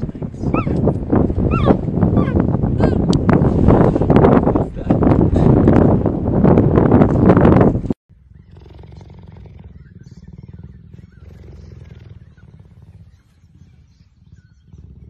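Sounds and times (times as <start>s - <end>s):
cheetah purring: 0.0s - 3.1s, 8.3s - 15.0s
wind buffeting microphone: 0.0s - 15.0s.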